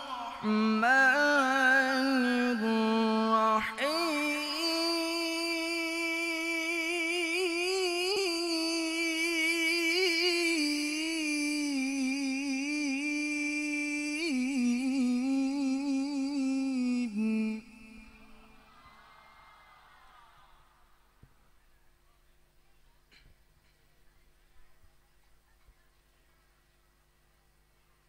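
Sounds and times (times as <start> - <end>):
man reciting melodically: 0.0 - 18.5.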